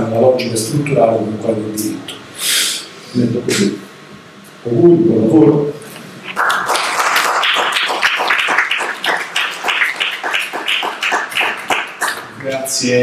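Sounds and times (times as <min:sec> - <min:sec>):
audience applauding: 0:06.3 - 0:12.8.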